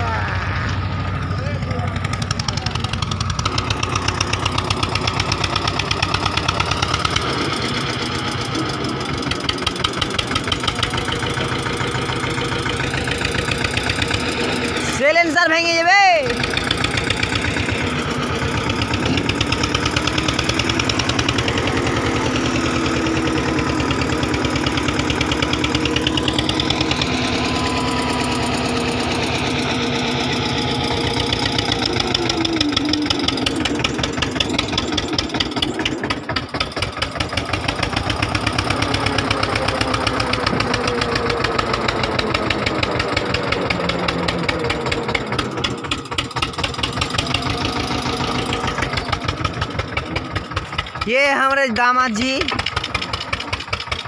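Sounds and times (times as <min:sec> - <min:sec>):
tractor diesel engine running: 0:00.0 - 0:54.0.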